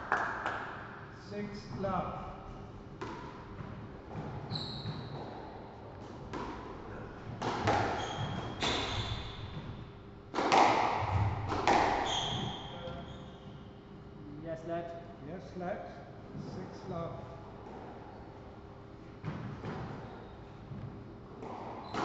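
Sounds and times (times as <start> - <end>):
squash ball hitting rackets and walls: 3.0 - 13.0, 19.2 - 22.0
shoes squeaking on wooden floor: 4.4 - 5.2, 7.7 - 9.7, 12.0 - 13.6.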